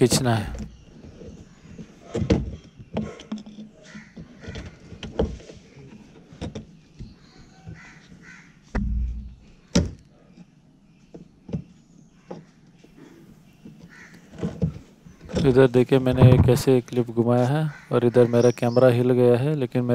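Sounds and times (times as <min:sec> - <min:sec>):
dull thump of camera: 0:08.8 - 0:10.0, 0:16.1 - 0:16.7.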